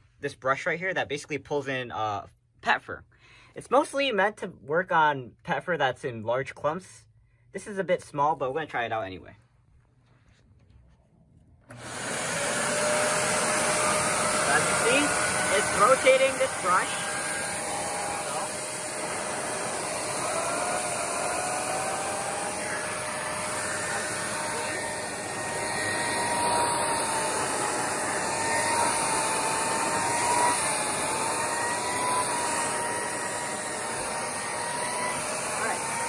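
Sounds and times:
vacuum cleaner running: 0:11.6 - 0:36.0.

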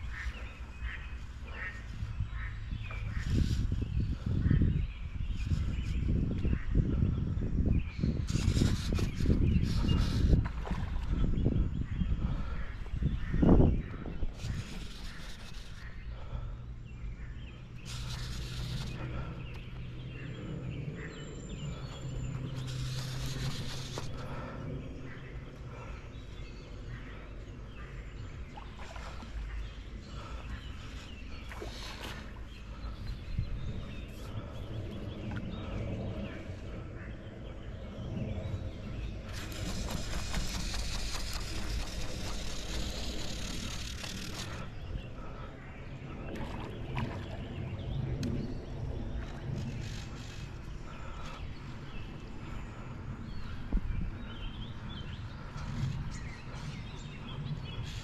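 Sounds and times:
birds chirping: 0:00.0 - 0:58.0
steady low hum: 0:00.0 - 0:58.0
wind rumble on microphone: 0:00.0 - 0:58.0
fly reel drag clicking: 0:22.6 - 0:24.2, 0:39.3 - 0:44.7.

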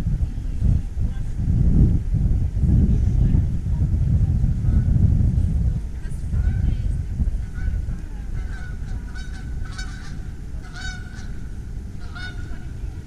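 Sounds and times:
low rumble: 0:00.0 - 0:13.0
waterbird honking: 0:07.5 - 0:12.9.

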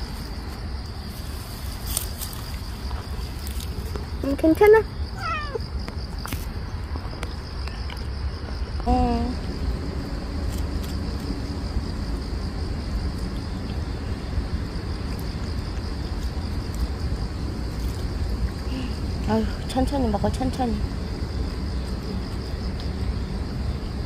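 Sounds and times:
insects trilling: 0:00.0 - 0:24.0
low rumbling background: 0:00.0 - 0:24.0.

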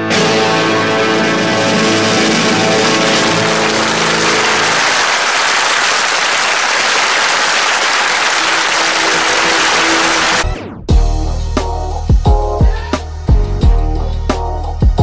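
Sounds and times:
audience applauding: 0:02.3 - 0:10.5.

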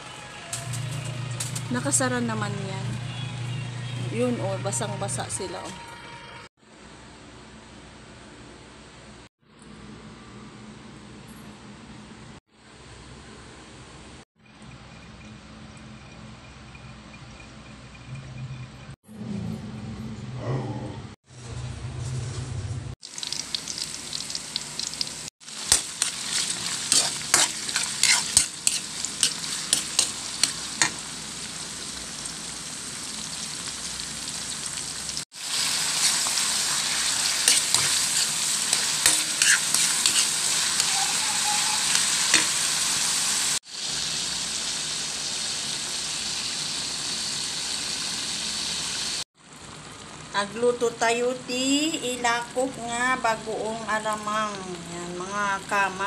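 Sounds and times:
oil sizzling in a pan: 0:23.0 - 0:51.0
spatula stirring and clicking on pan: 0:25.6 - 0:31.0, 0:37.3 - 0:42.6.

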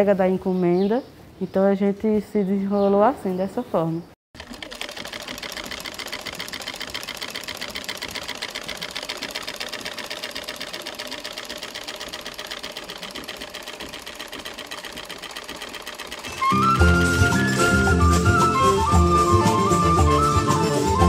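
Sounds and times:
sewing machine clattering: 0:04.4 - 0:17.6.

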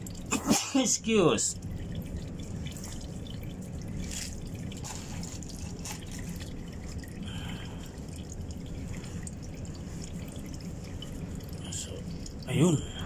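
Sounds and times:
oil dripping: 0:00.0 - 0:13.0.

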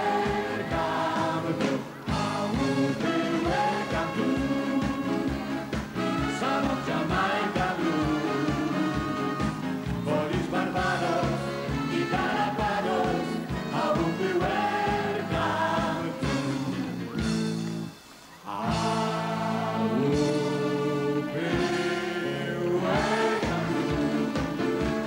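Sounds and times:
live pop band music: 0:00.0 - 0:25.0.

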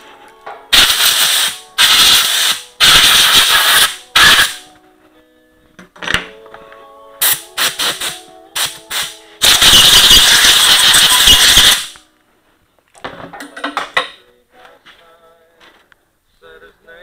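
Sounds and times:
compressed air blowgun hissing: 0:00.7 - 0:04.6, 0:07.2 - 0:12.0
tools clicking and knocking: 0:13.0 - 0:14.2.

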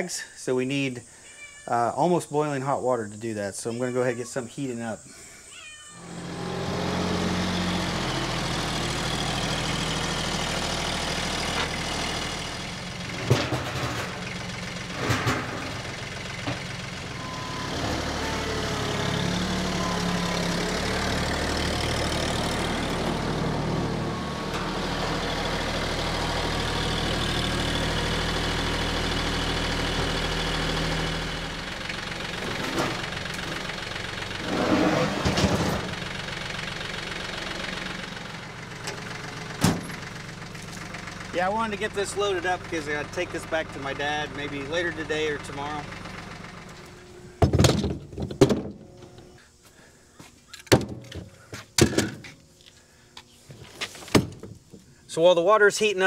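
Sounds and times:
engine idling: 0:06.0 - 0:53.6
sharp knocks and clunks: 0:13.2 - 0:14.2, 0:39.6 - 0:40.0, 0:47.4 - 0:48.8, 0:50.6 - 0:52.4, 0:54.0 - 0:54.9.

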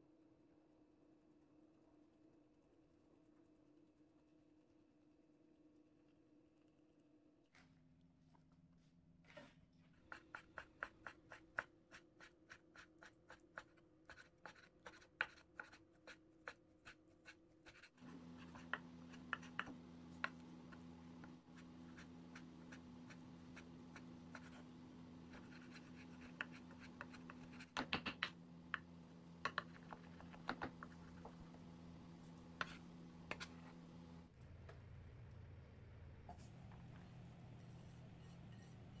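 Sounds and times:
steady low hum: 0:17.7 - 0:39.0.

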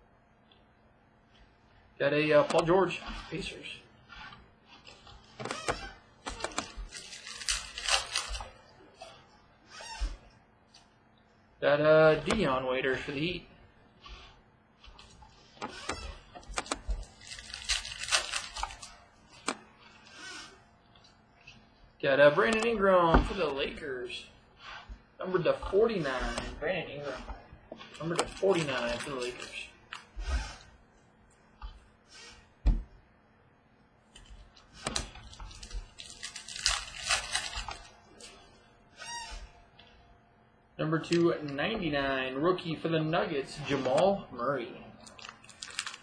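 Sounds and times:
cards clicking and rustling: 0:05.2 - 0:08.6, 0:15.0 - 0:19.6, 0:26.2 - 0:30.1, 0:34.2 - 0:38.4, 0:45.0 - 0:46.0
cards clicking and snapping: 0:15.9 - 0:19.6, 0:34.2 - 0:37.9, 0:45.0 - 0:46.0
cards sliding and flicking: 0:26.1 - 0:30.7.

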